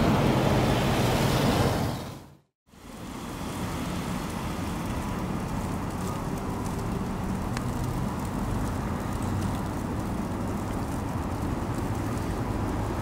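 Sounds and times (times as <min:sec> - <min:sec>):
road traffic rumble and hiss: 0:00.0 - 0:13.0.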